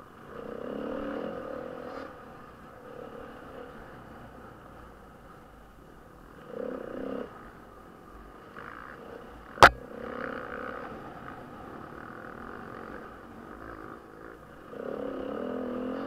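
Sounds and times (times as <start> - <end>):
off-road motorcycle engine: 0.0 - 4.8, 6.3 - 16.0
sharp knock: 9.6 - 9.8.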